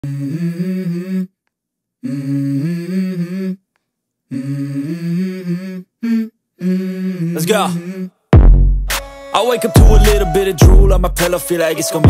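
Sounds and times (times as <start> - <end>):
person humming a melody: 0.0 - 1.4, 2.0 - 3.6, 4.3 - 8.2, 9.4 - 12.0.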